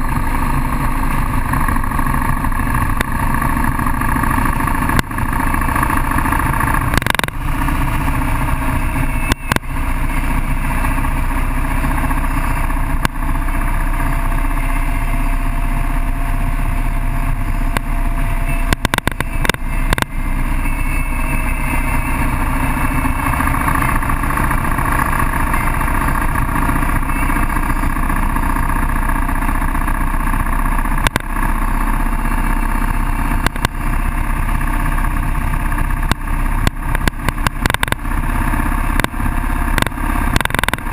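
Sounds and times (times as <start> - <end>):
motorcycle engine running: 0.0 - 40.9.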